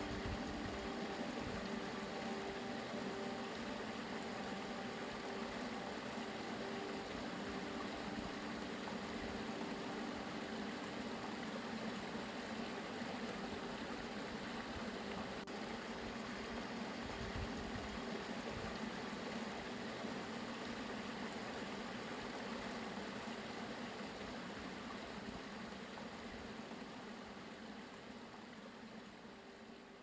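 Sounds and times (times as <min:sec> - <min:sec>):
stream water rushing and babbling: 0:00.0 - 0:30.0.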